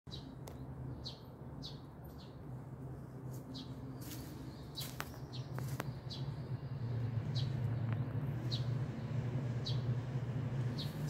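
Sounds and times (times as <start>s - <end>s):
steady low hum: 0.3s - 11.0s
small bird chirping: 3.4s - 11.0s.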